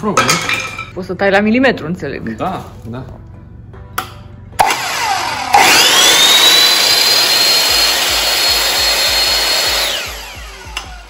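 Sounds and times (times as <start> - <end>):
mitre saw blade whining: 4.6 - 11.0.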